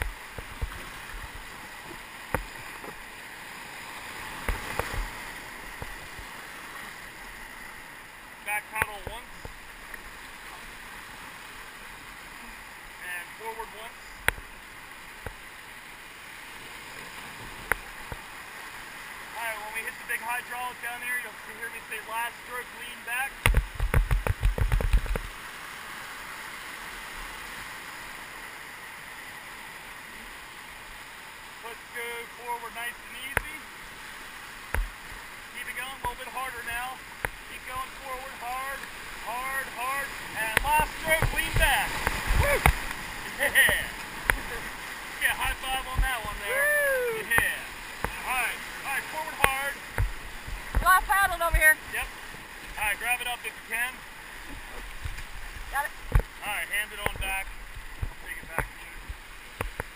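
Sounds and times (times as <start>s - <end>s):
water splashes: 0.0s - 59.9s
whitewater rapids rushing: 0.0s - 59.9s
knocks and thumps: 23.4s - 25.3s.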